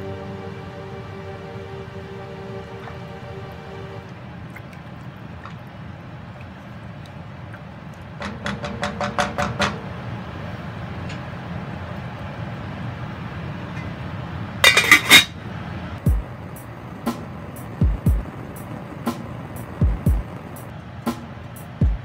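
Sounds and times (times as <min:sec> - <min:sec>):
background music with drum beat: 0:16.1 - 0:16.3, 0:17.1 - 0:18.4, 0:19.1 - 0:22.0.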